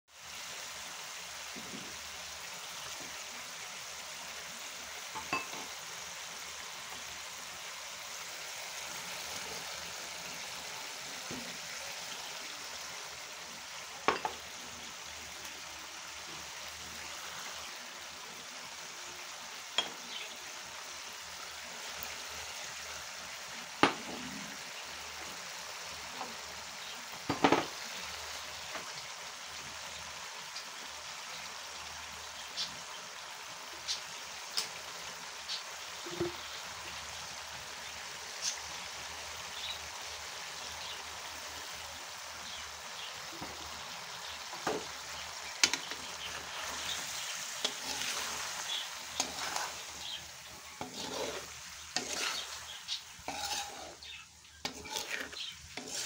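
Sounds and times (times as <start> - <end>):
food sizzling in wok: 0.1 - 56.0
knocks against pan: 27.3 - 27.7.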